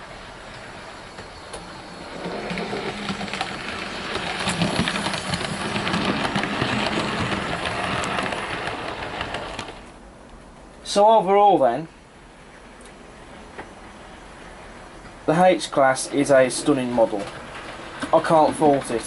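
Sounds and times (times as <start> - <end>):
wheels clicking on track: 0.2 - 10.0, 14.4 - 19.0.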